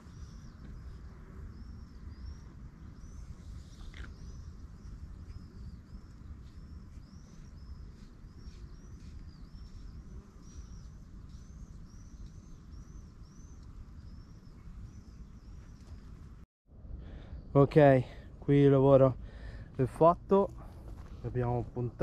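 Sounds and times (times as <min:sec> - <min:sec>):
small bird chirping: 0:00.0 - 0:16.2.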